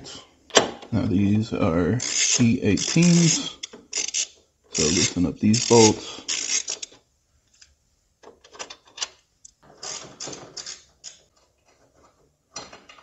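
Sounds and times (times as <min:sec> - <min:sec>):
hand tool clicking and scraping metal: 0:02.0 - 0:07.7, 0:08.4 - 0:13.0.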